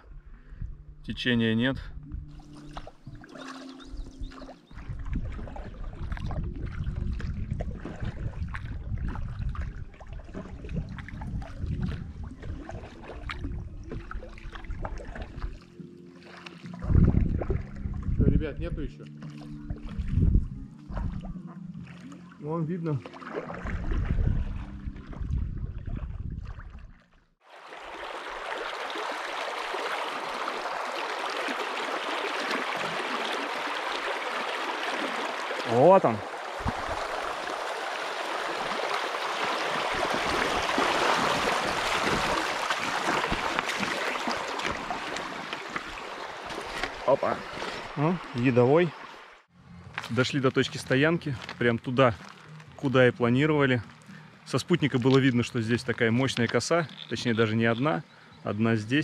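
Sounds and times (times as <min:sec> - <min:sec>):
paddle splashing in water: 0:02.3 - 0:18.1, 0:19.1 - 0:20.3, 0:20.9 - 0:50.2.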